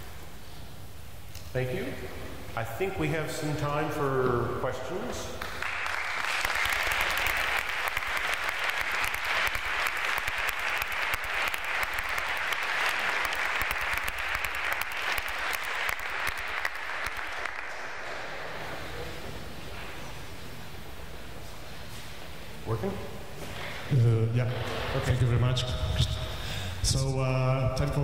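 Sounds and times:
audience applauding: 5.4s - 19.0s.

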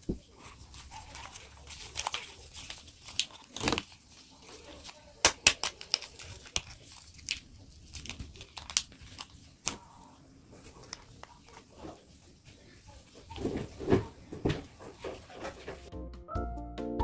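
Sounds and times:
paper sachets crinkling: 0.3s - 11.8s
paper tearing: 0.5s - 9.8s.

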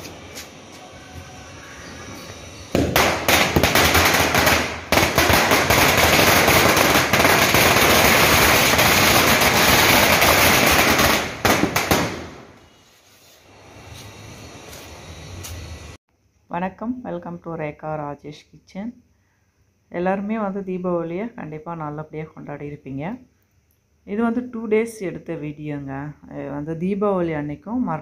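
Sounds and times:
firecrackers banging: 2.1s - 12.6s.

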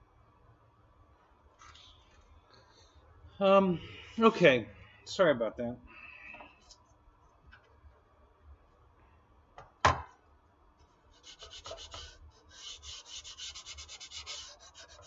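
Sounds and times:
sandpaper sanding strokes: 11.2s - 15.0s.

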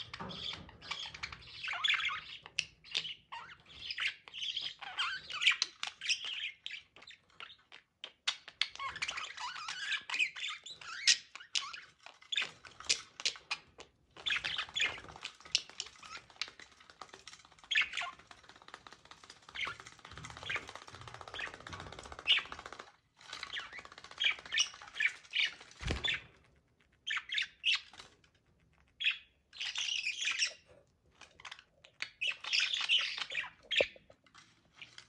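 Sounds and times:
budgerigars chattering: 32.0s - 34.0s.

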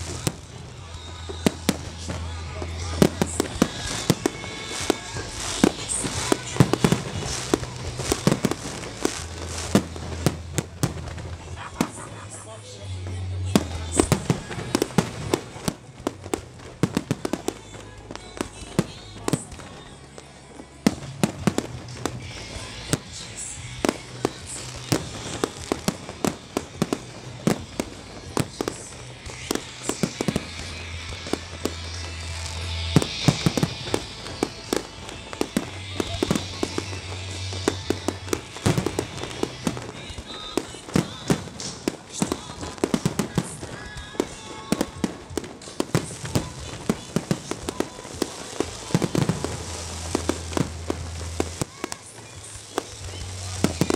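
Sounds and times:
fireworks bursting: 0.0s - 53.9s.

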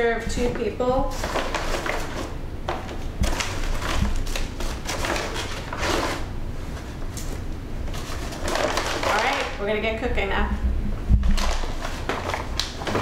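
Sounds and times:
paper bag rustling: 1.0s - 9.6s, 11.3s - 13.0s.

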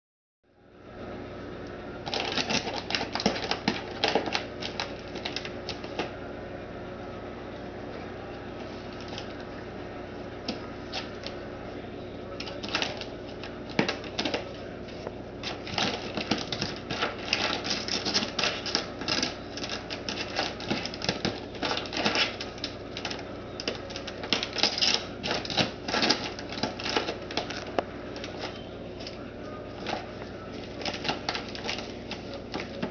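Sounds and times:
plastic bag crinkling: 2.0s - 6.1s, 15.4s - 32.9s.

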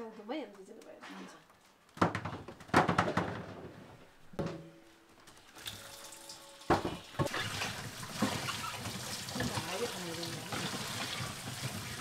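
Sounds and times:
tap water running: 5.4s - 12.0s
apples knocking into metal bowl: 6.7s - 7.4s.

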